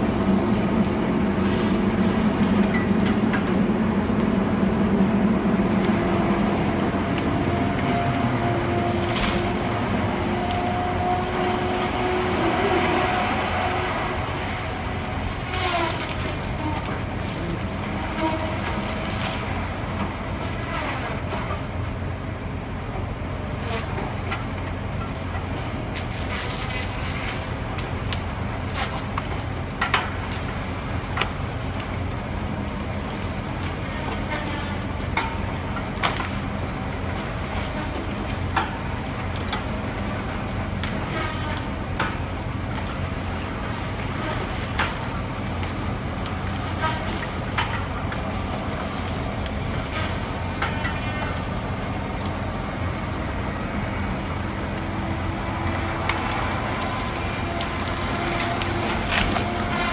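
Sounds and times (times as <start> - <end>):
diesel engine droning: 0.0 - 59.9
wood cracking and snapping: 15.2 - 19.6, 35.1 - 59.9.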